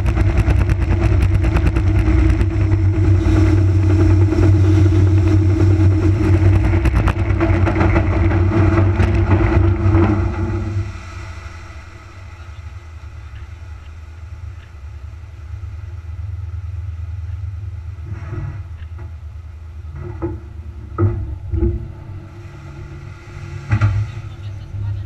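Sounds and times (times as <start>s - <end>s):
knocks and rattles: 0.0s - 10.8s, 19.9s - 22.0s
vehicle engine rumble: 0.0s - 25.0s.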